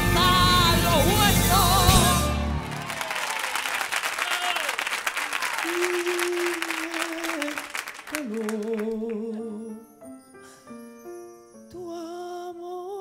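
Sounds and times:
orchestral music: 0:00.0 - 0:03.1
piano: 0:00.0 - 0:03.1, 0:07.4 - 0:13.0
audience applause: 0:02.3 - 0:09.2
man singing a long note: 0:05.6 - 0:09.8.

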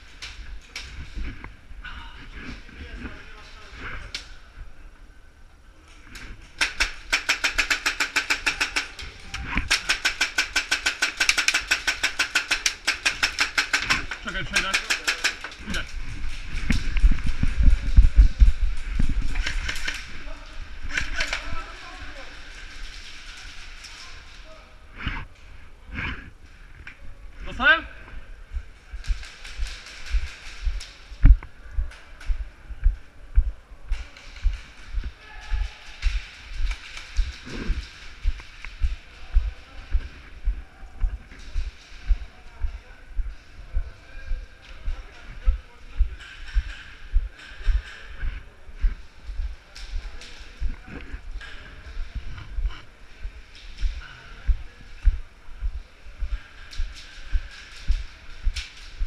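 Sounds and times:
airsoft gun firing full auto: 0:06.6 - 0:08.9, 0:09.7 - 0:14.0.

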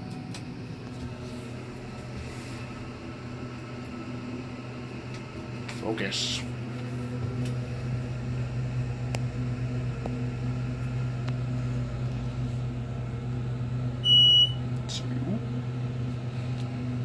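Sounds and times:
elevator pump motor hum: 0:00.0 - 0:17.0
high electronic beep: 0:14.0 - 0:14.6.

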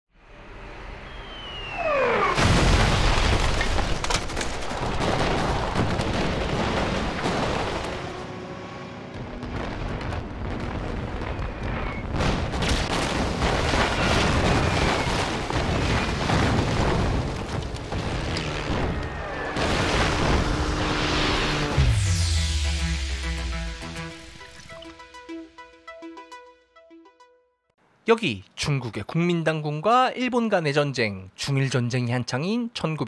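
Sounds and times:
descending bomb whistles: 0:00.6 - 0:02.4, 0:21.6 - 0:23.8
explosions: 0:01.8 - 0:08.3, 0:09.1 - 0:24.6.

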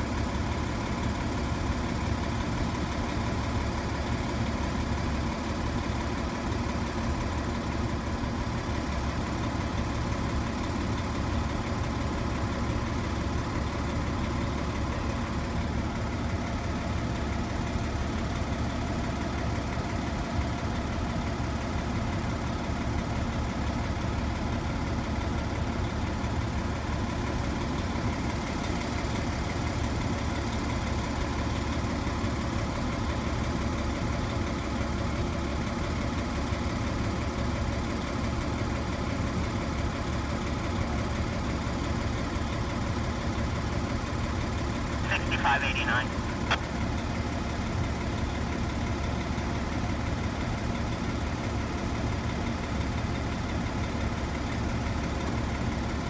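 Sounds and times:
large vehicle engine idling: 0:00.0 - 0:56.0.

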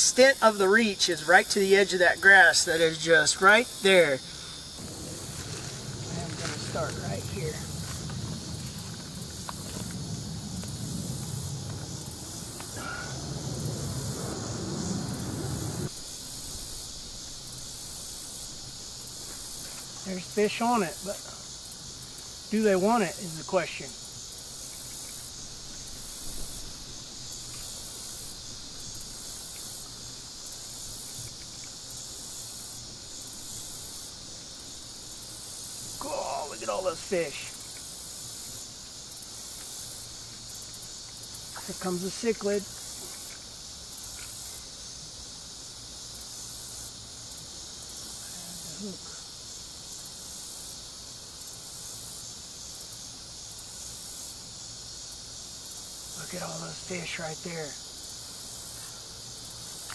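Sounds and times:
insects singing in high pulses: 0:00.0 - 0:59.9
steady high hiss: 0:00.0 - 0:59.9
faint low rumble: 0:04.8 - 0:15.9.

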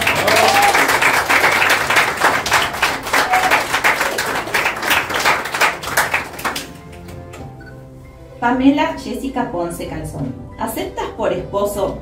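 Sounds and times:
people applauding: 0:00.0 - 0:07.4.

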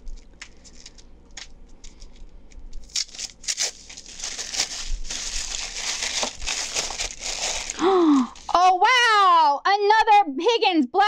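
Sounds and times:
tissue paper crinkling: 0:01.9 - 0:08.5.

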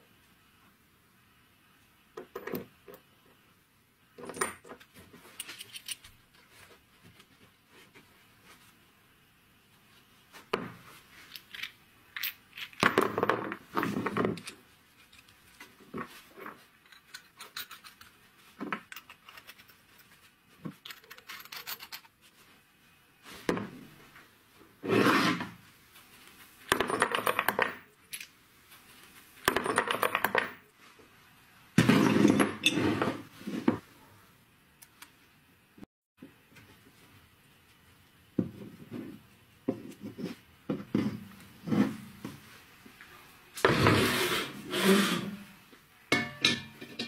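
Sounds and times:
threaded parts scraping: 0:18.8 - 0:22.2.

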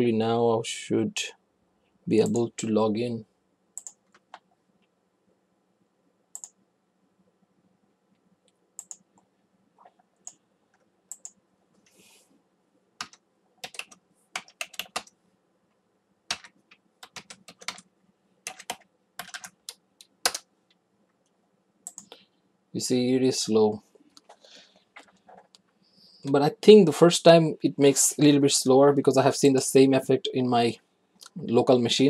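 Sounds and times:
computer keyboard typing: 0:03.8 - 0:04.5, 0:06.3 - 0:06.6, 0:08.8 - 0:09.1, 0:10.2 - 0:11.4, 0:13.0 - 0:15.1, 0:16.3 - 0:20.5, 0:21.8 - 0:22.2.

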